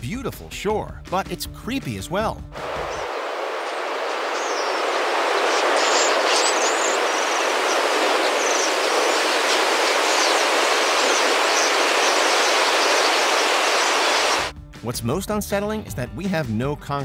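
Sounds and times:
short high bird calls: 2.6 - 14.5
whoosh of flock flying: 2.6 - 14.5.

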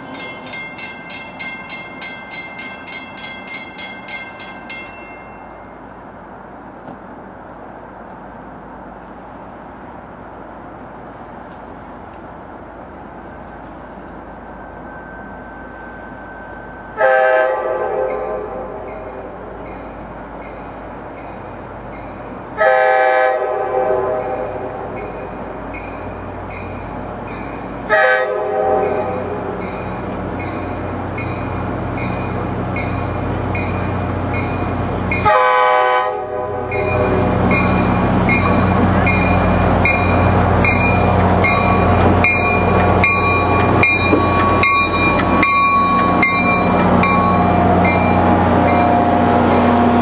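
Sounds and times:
bell dinging: 0.0 - 5.7, 36.7 - 48.9
locomotive air horn blasts: 17.0 - 18.8, 22.6 - 24.9, 27.9 - 29.4, 35.2 - 37.4
wheels clicking over rail joints: 36.7 - 50.0.

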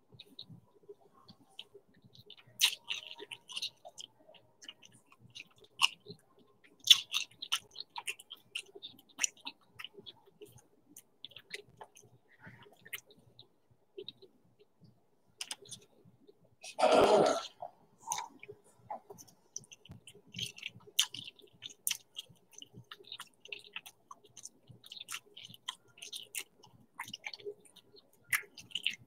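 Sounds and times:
crunchy snack chewing: 1.3 - 13.2, 19.1 - 29.0
wet mouth clicks: 1.3 - 13.2, 15.4 - 15.9, 16.7 - 29.0.

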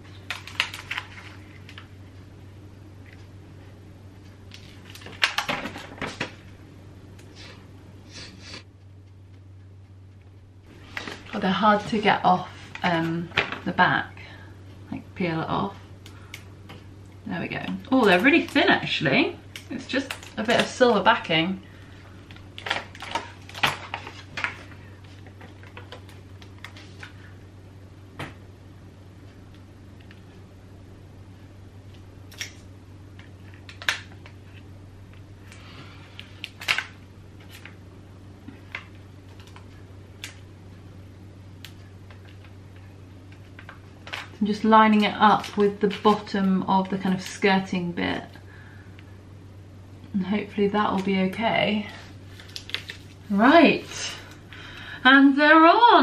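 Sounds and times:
plastic sheet crackling: 0.0 - 1.9, 22.2 - 27.1, 41.6 - 47.4, 51.0 - 54.4.

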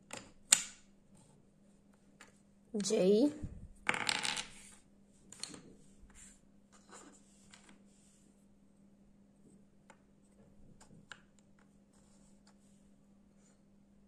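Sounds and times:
wooden puzzle pieces clicking: 0.0 - 0.8.

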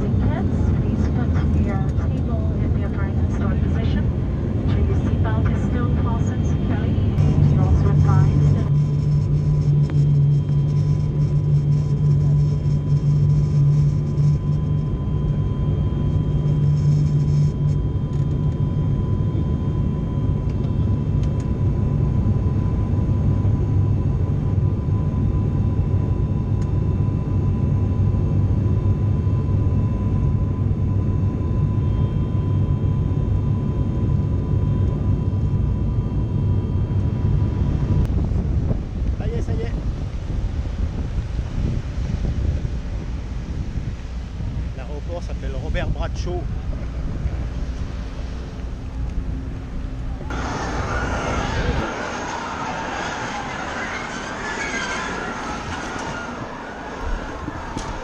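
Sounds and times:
propeller engine drone: 0.0 - 58.0
thin engine whine: 0.0 - 58.0.

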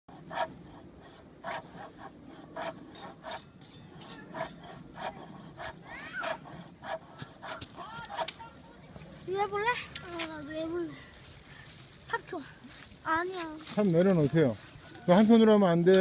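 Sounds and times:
pruning saw rasping through log: 0.1 - 8.4.

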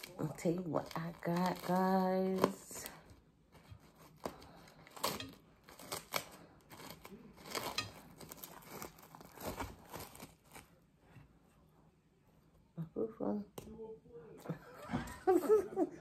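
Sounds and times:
plastic wrap crinkling: 0.0 - 10.8.

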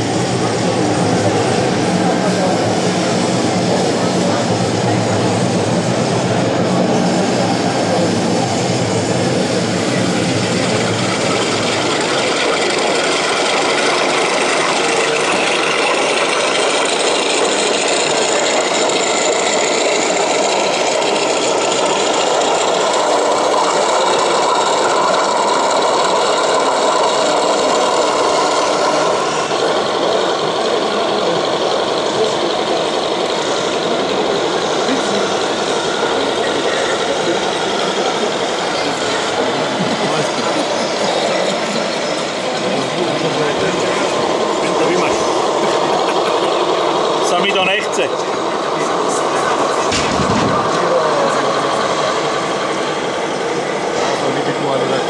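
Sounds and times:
model tanks mechanical drone: 0.0 - 55.0
deeper rumble: 26.9 - 55.0.

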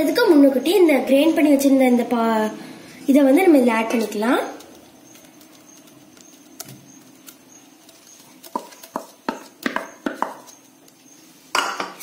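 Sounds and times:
wooden spoon scraping batter: 3.9 - 11.5.

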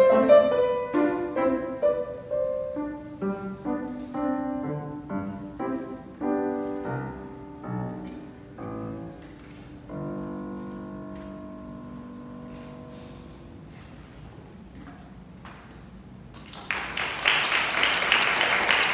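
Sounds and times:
grand piano playing chords: 0.0 - 13.7.

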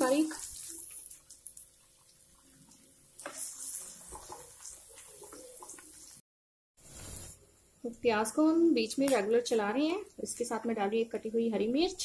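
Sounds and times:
onions sizzling in pan: 0.0 - 1.7, 6.8 - 8.6.

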